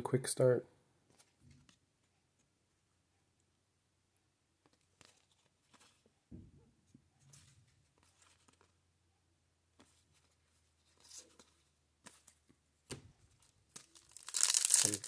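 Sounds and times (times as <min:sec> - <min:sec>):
trading cards being flipped: 0:10.9 - 0:15.0.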